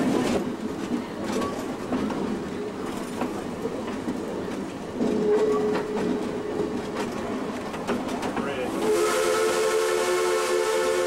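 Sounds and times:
train wheels clicking over rail joints: 0.0s - 8.9s
train rumble: 0.0s - 11.0s
steam whistle: 8.7s - 11.0s.

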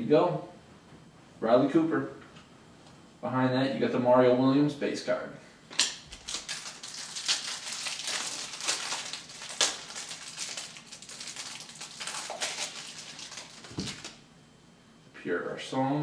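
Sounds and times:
sharp snaps and clicks: 5.7s - 6.6s
plastic packaging crinkling: 5.8s - 14.2s.

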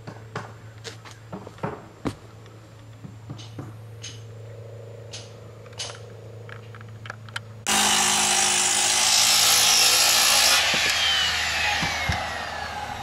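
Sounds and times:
circular saw cutting wood: 7.7s - 13.0s.

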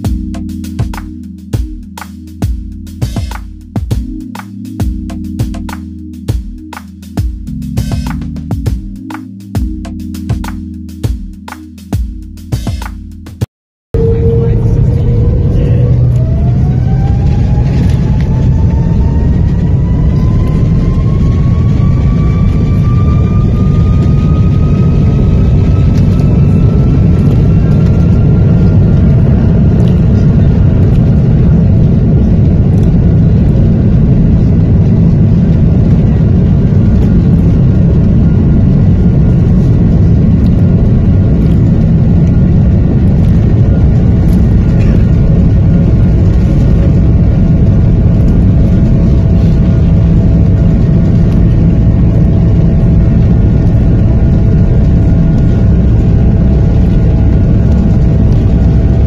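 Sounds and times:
jet engine rumble and rushing air: 0.0s - 13.0s, 13.9s - 59.0s
faint engine whine: 14.0s - 59.0s.

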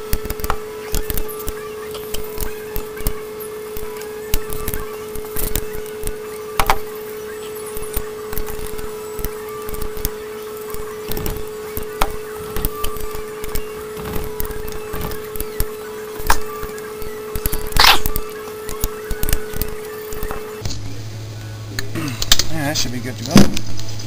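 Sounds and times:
steady hum: 0.0s - 24.0s.

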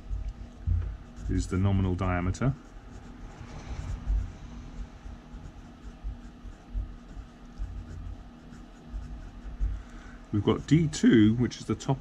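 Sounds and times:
marker pen scratching on paper: 0.0s - 11.3s
dull low knocks: 0.3s - 1.1s.

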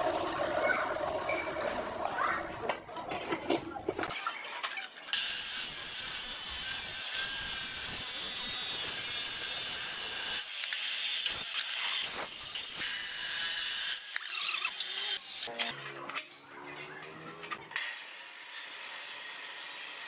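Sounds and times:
saw grinding through steel: 5.1s - 20.0s.

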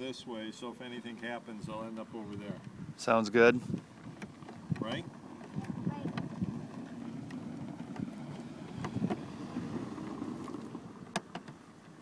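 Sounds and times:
wind rumbling on microphone: 1.6s - 11.2s.

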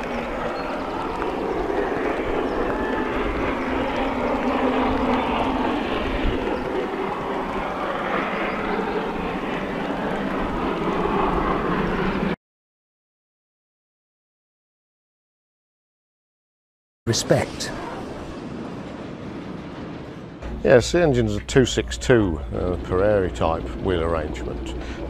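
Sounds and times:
steam locomotive exhaust: 20.4s - 25.0s.

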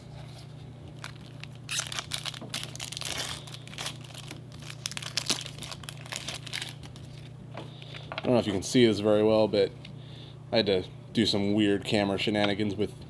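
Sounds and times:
foil wrapper crinkling and tearing: 0.9s - 7.3s.

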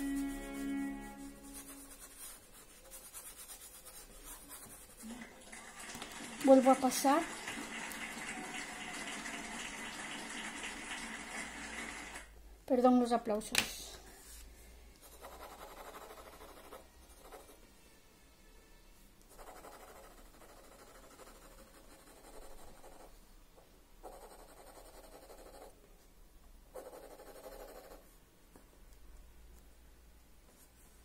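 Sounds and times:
pencil scratching on paper: 0.0s - 5.1s, 15.0s - 17.6s, 19.3s - 23.2s, 24.0s - 25.8s, 26.7s - 28.2s.

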